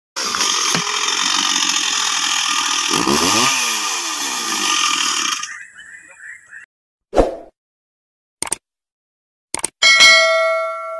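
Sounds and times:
chainsaw engine at high revs: 0.2 - 5.6.

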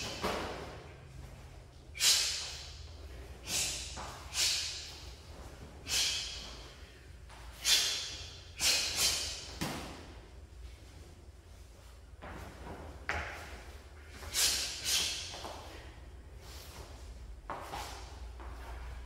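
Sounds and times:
sharp hissing exhalations: 3.4 - 5.0, 5.8 - 6.5, 7.6 - 9.5.

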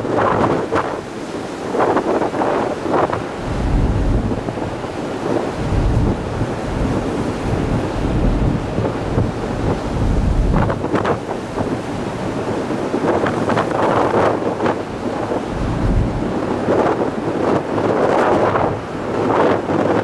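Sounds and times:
sea rushing: 0.0 - 20.0
wind buffeting microphone: 0.0 - 20.0.

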